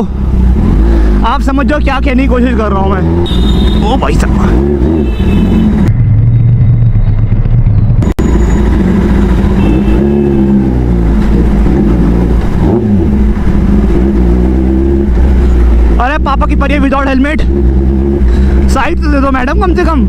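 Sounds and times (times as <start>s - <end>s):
motorcycle engine throttle blips: 3.0s - 14.2s.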